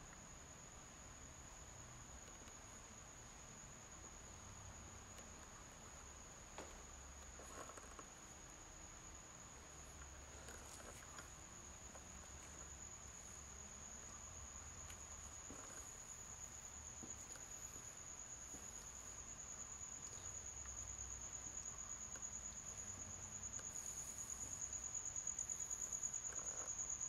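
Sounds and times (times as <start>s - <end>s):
faint footsteps: 14.8s - 19.3s.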